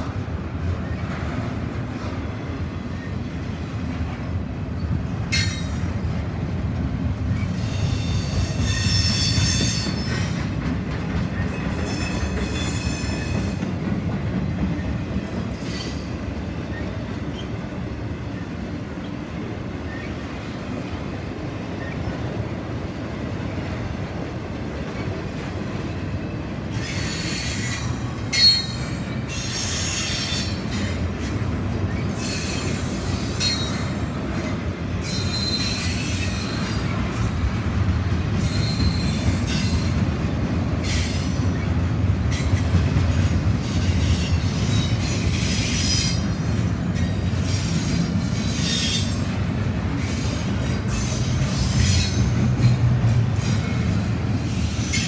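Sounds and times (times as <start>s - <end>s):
train wheels rumbling on rail: 0.0s - 55.0s
high wheel squeals: 35.0s - 36.8s, 38.4s - 39.9s.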